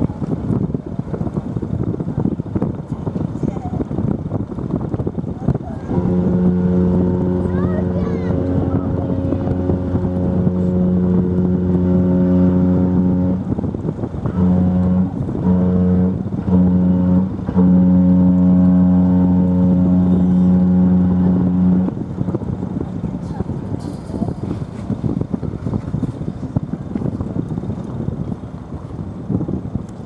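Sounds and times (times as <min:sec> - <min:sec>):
deep ship's whistle blasts: 0:05.8 - 0:22.0.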